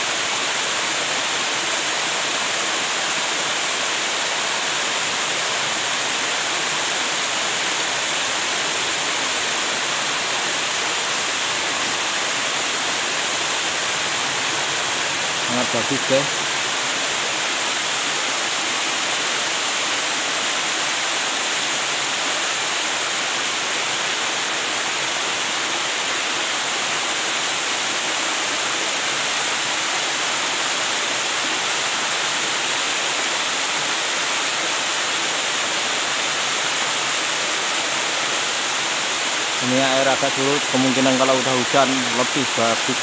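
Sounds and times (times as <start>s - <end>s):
small waterfall rushing: 0.0s - 43.0s.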